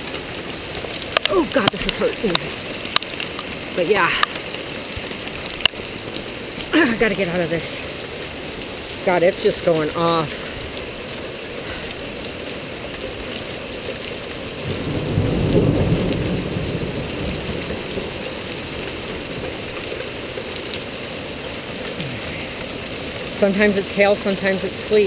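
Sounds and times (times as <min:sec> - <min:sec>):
rain and hail downpour: 0:00.0 - 0:25.0
low thunder roll: 0:14.6 - 0:18.4.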